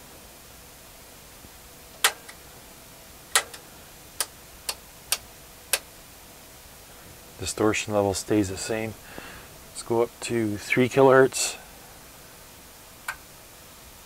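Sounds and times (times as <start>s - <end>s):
rotary switch clicks: 2.0s - 2.4s, 3.3s - 3.6s, 4.2s - 5.9s.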